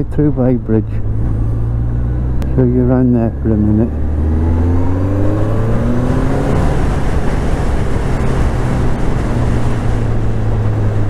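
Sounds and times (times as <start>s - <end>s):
motorcycle engine accelerating: 0.0s - 11.0s
wind noise on microphone: 4.1s - 11.0s.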